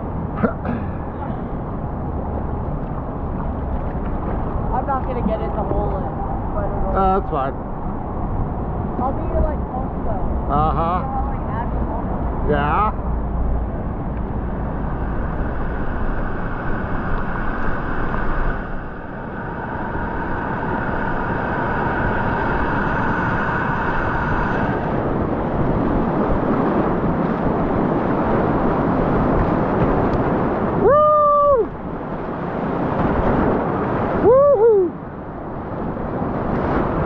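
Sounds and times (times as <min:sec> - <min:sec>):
person whooping: 0:30.8 - 0:31.7, 0:34.2 - 0:35.0.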